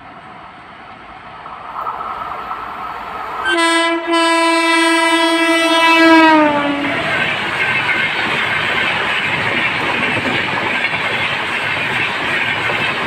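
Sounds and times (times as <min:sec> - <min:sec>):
train noise: 0:00.0 - 0:13.0
train horn long blast: 0:03.4 - 0:07.1.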